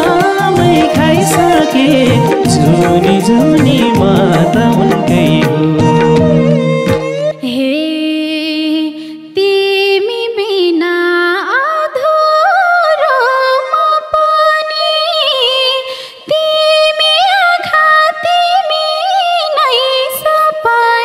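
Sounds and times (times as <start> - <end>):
folk melody with gliding notes: 0.0 - 7.8
person singing: 0.0 - 17.2.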